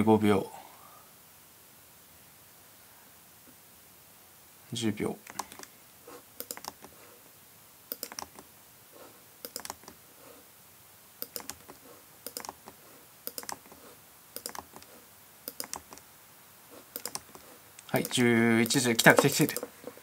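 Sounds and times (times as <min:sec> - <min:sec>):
computer keys tapping: 0:05.3 - 0:05.7, 0:06.4 - 0:06.9, 0:07.9 - 0:08.5, 0:09.4 - 0:10.0, 0:11.2 - 0:13.8, 0:14.4 - 0:16.1, 0:16.9 - 0:19.7.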